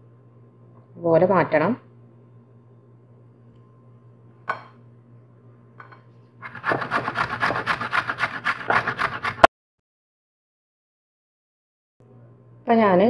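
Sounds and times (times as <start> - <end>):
root rasping on grater: 6.4 - 9.5.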